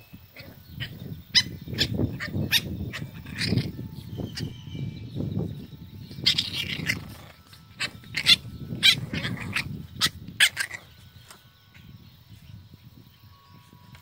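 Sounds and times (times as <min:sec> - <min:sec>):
puppies growling and grunting: 0:00.3 - 0:04.4, 0:06.2 - 0:11.0.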